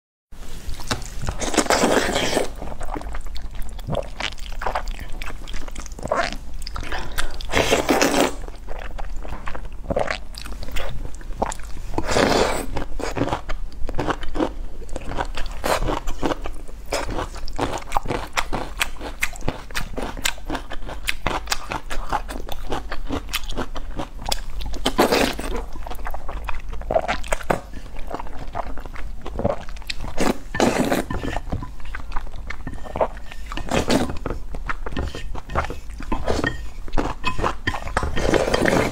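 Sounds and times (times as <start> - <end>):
slurping noodles: 0.8 - 3.1, 6.1 - 8.4, 29.4 - 32.0, 32.6 - 38.9
wet chewing: 0.8 - 38.9.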